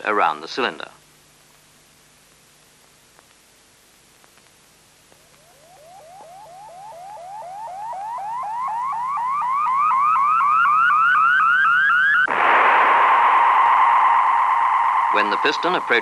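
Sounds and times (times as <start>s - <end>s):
loud steady hiss: 0.0s - 7.9s, 12.2s - 16.0s
rising electronic chirps: 5.2s - 16.0s.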